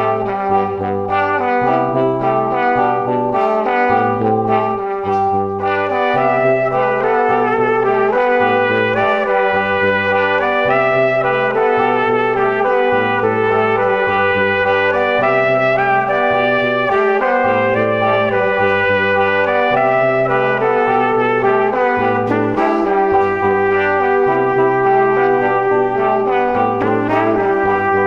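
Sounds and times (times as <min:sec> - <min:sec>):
bass line: 0:00.0 - 0:28.0
brass melody: 0:00.0 - 0:28.0.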